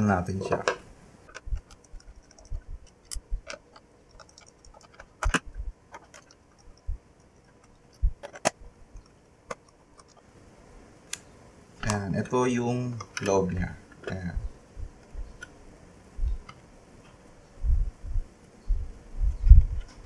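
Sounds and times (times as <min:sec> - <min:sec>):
screwdriver clicking on plastic: 0:01.3 - 0:10.2.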